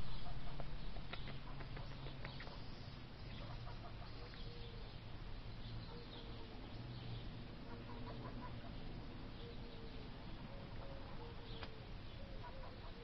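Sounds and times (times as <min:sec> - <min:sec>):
outdoor background hiss: 0:00.0 - 0:13.0
hens clucking: 0:07.6 - 0:08.8.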